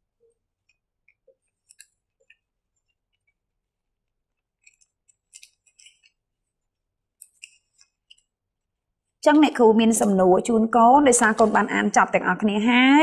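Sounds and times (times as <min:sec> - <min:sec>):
paper rustling: 0:04.0 - 0:06.6.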